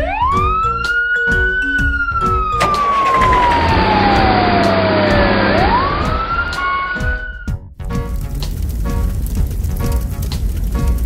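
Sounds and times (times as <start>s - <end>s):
cartoon fire truck siren: 0.0s - 7.6s
rushing vehicle noise: 2.6s - 7.2s.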